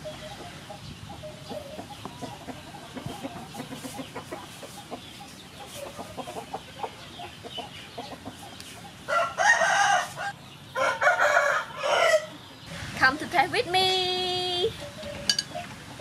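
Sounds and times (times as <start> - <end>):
chickens clucking: 0.0 - 13.0, 14.7 - 16.0
rooster crowing: 9.1 - 12.4.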